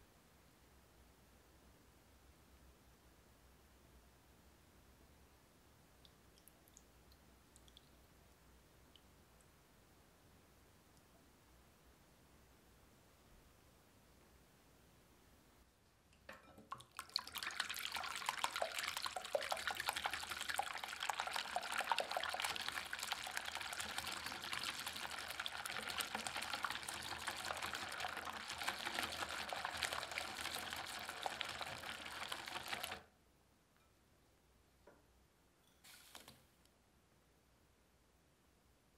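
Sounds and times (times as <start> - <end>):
whisk beating egg whites: 17.0 - 33.0.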